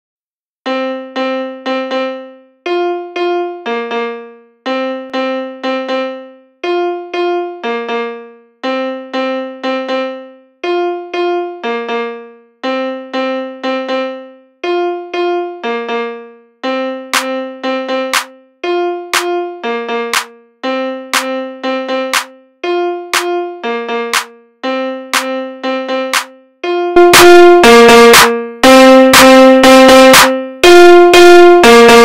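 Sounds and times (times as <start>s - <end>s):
piano-like keyboard riff: 0.6s - 32.0s.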